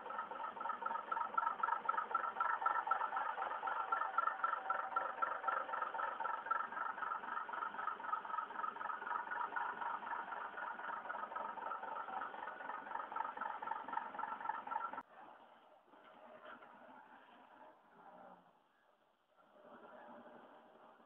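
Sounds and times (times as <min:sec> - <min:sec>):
diesel truck engine running: 0:00.0 - 0:15.1.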